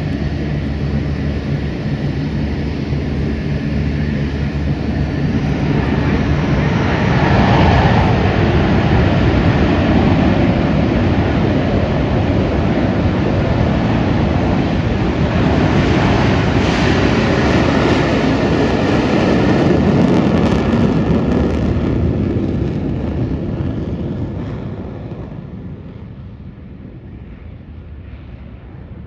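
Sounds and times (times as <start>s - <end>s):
thin jet whine: 0.0s - 22.7s
jet engines roaring: 0.0s - 29.0s.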